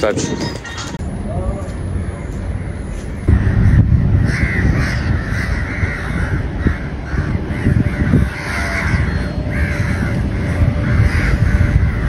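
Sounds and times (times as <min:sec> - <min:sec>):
crows cawing: 0:02.6 - 0:12.0.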